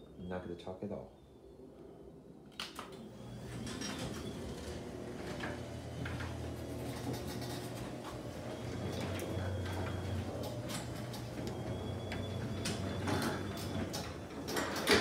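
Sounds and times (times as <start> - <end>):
garage door opener click: 2.6 - 15.0
garage door motor humming: 2.8 - 15.0
door rollers clicking and rattling: 3.0 - 15.0.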